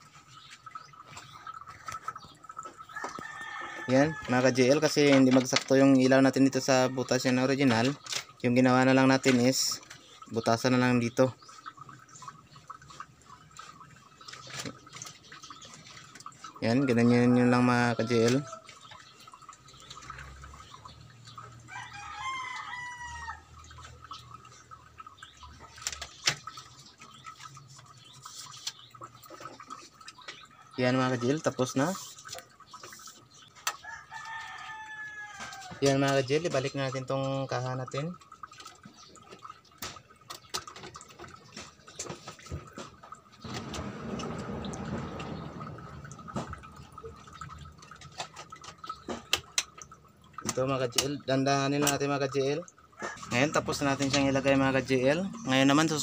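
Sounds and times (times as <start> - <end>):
rooster crowing: 21.7 - 23.4, 33.9 - 35.8, 53.0 - 53.4.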